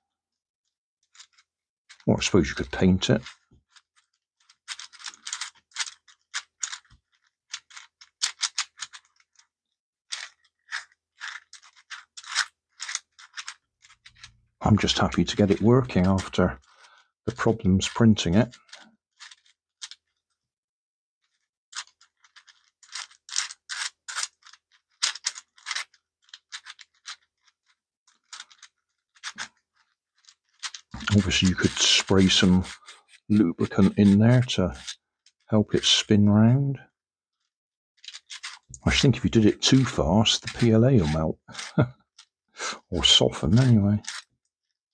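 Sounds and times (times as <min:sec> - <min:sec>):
plastic puzzle cube clicking: 0:03.1 - 0:09.5, 0:10.1 - 0:14.3, 0:21.8 - 0:35.0, 0:39.8 - 0:41.8, 0:43.1 - 0:44.3.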